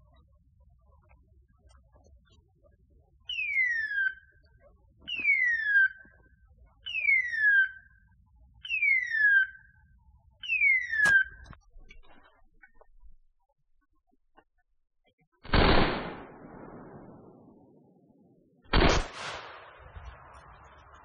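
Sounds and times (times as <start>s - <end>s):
beeper collar falling whistles: 10.5s - 11.5s.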